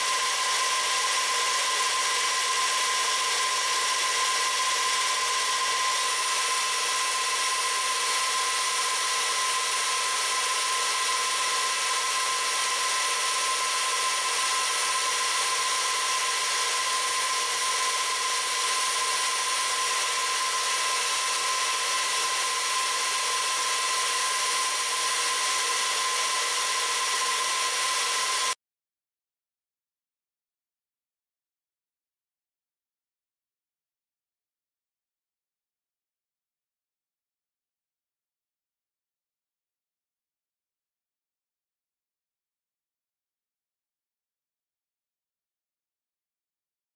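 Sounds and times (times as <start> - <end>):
milling machine whine: 0.0 - 28.6.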